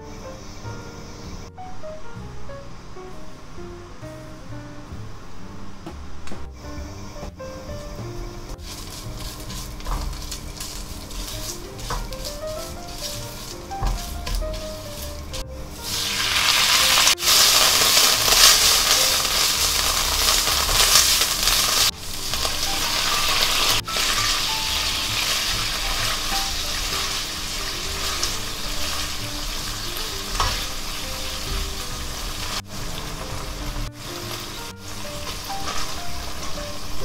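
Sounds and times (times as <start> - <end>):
curry paste sizzling in oil: 7.7 - 37.0
spatula stirring in pan: 8.5 - 36.6.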